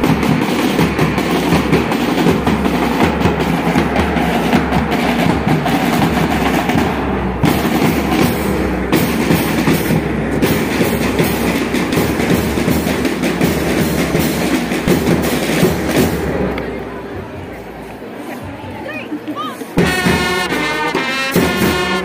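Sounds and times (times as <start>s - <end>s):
steady drumming with bass drum: 0.0s - 17.8s, 19.6s - 22.0s
brass marching band playing: 0.0s - 22.0s
trumpets: 19.8s - 22.0s.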